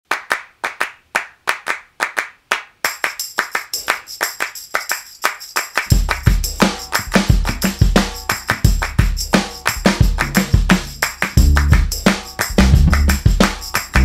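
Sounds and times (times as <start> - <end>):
handclap rhythm: 0.0 - 14.0
heavy bass drum: 5.9 - 14.0.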